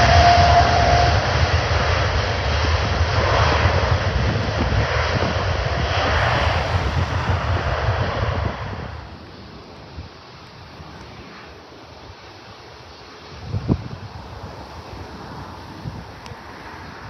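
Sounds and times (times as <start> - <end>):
jet engine roar: 0.0 - 17.0
thin steady whine: 3.4 - 17.0.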